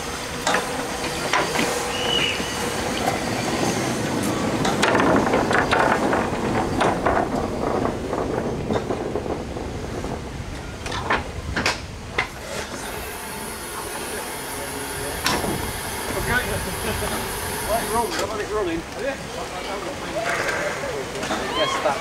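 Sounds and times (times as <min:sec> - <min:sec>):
rush of noise: 0:00.0 - 0:22.0
turntable rumbling with clicks: 0:04.2 - 0:12.9.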